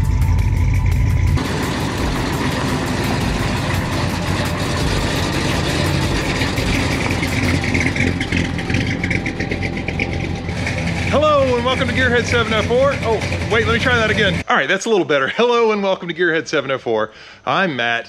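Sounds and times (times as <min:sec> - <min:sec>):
pickup truck engine rolling past: 0:00.0 - 0:14.4.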